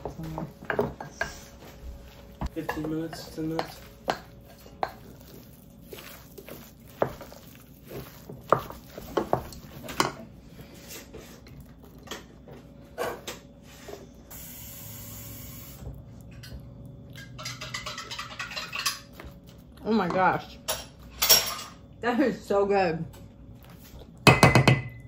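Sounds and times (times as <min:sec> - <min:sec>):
utensils clinking on dishes: 0:02.4 - 0:10.3, 0:16.3 - 0:19.3, 0:20.1 - 0:21.8.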